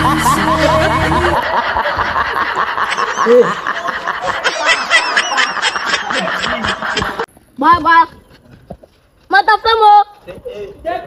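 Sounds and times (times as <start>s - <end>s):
high-pitched snickering laughter: 0.0s - 7.3s.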